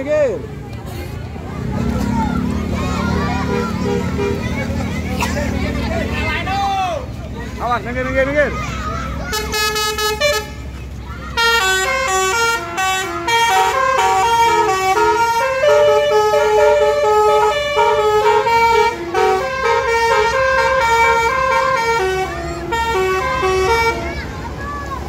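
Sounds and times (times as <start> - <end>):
musical bus horn playing tune: 3.4 - 4.5, 9.3 - 10.8, 11.4 - 24.1.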